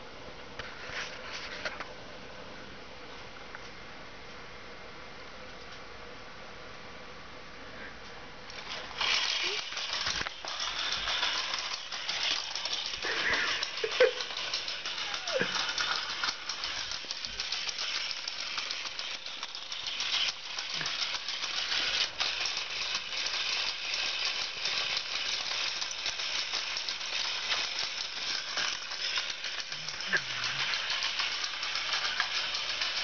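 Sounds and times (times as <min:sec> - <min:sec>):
toy gears clicking rattle: 0:08.5 - 0:33.0.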